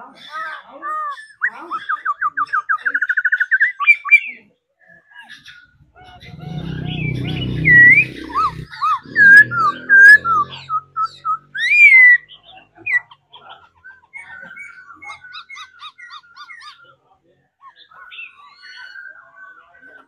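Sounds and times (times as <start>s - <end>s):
bird singing whistled notes: 6.2s - 13.0s.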